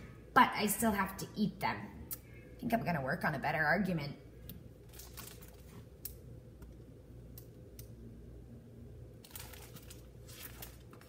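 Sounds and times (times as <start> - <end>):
light rustling of book: 9.2 - 11.0.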